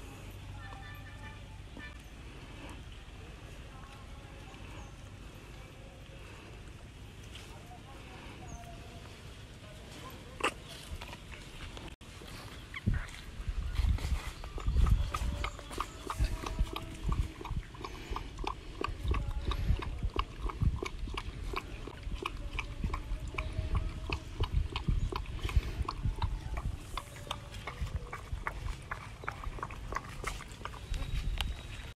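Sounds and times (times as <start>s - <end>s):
animals eating clicks: 14.5s - 31.9s.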